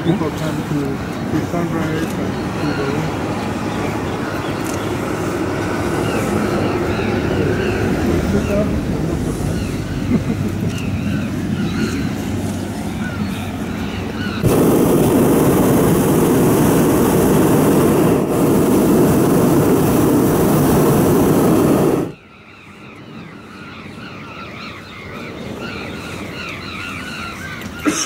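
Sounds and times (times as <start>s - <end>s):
propane burner roaring: 0.0s - 22.2s
birds calling: 0.0s - 28.0s.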